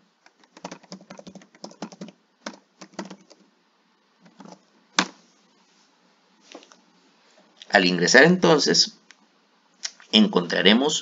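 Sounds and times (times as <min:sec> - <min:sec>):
keyboard typing: 0:00.2 - 0:03.5, 0:04.2 - 0:05.1.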